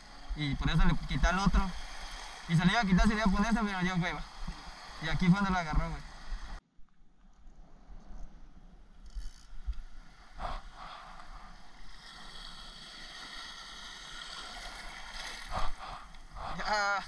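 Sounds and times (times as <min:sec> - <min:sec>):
sea water lapping: 0:00.0 - 0:06.6, 0:10.0 - 0:17.0
water splashes: 0:10.4 - 0:17.0.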